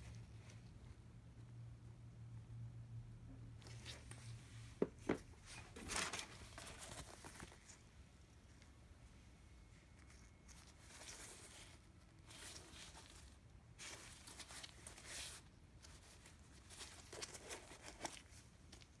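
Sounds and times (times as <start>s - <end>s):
gloved hands rustling a sneaker: 10.0s - 19.0s.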